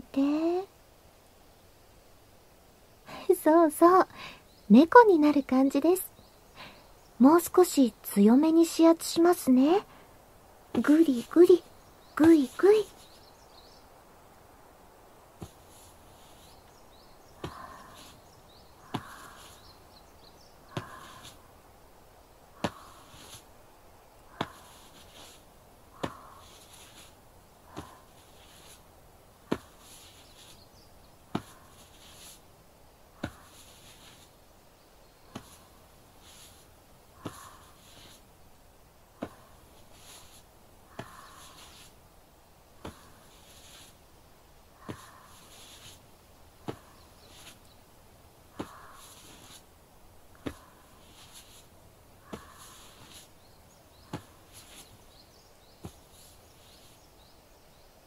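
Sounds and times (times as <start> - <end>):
faint chirping: 2.8 - 14.1, 15.0 - 58.0
quiet breath: 3.0 - 3.4, 4.1 - 4.6, 6.2 - 7.1, 9.8 - 10.4, 15.4 - 38.4, 39.0 - 57.3
soft massage thumps: 10.6 - 13.3, 15.3 - 21.6, 22.5 - 32.5, 33.1 - 34.4, 35.2 - 38.4, 39.0 - 57.2
short thumps: 17.4 - 18.2, 18.8 - 19.6, 22.6 - 23.4, 26.0 - 27.1, 29.4 - 30.6, 31.3 - 32.4, 33.2 - 34.2, 37.2 - 38.2, 39.2 - 41.9.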